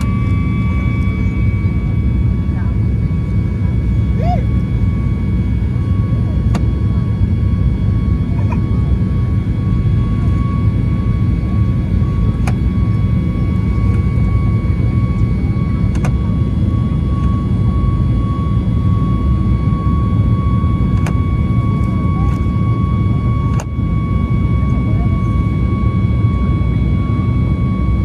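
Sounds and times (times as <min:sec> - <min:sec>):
jet engine and airflow roar: 0:00.0 - 0:28.0
steady whine: 0:00.0 - 0:28.0.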